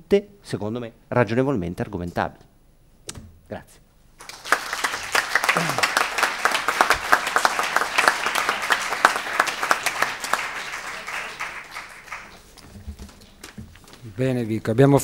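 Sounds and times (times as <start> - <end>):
crowd applauding: 4.2 - 12.6.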